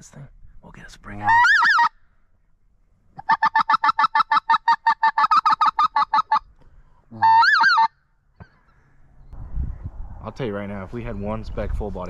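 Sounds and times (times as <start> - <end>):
goose call clucking: 1.2 - 2.0, 3.2 - 6.5, 7.1 - 8.0.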